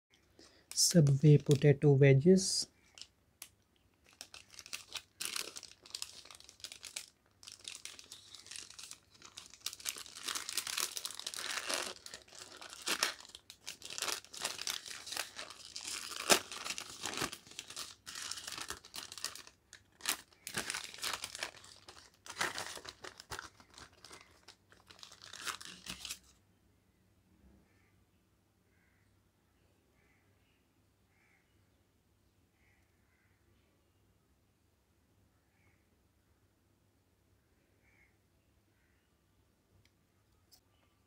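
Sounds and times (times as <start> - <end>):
paper bag crinkling: 4.0 - 26.3.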